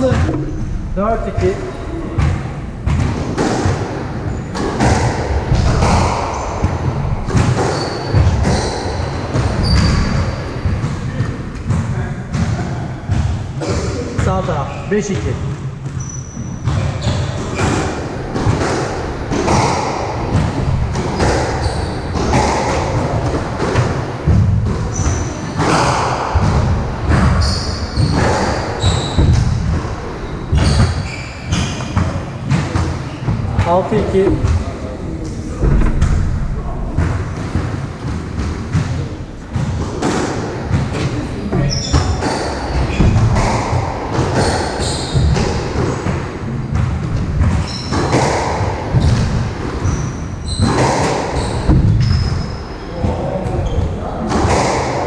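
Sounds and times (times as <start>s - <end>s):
squash ball hitting rackets and walls: 0.0s - 55.0s
shoes squeaking on wooden floor: 5.6s - 11.2s, 15.9s - 17.6s, 27.1s - 36.5s, 41.3s - 45.6s, 49.8s - 54.0s.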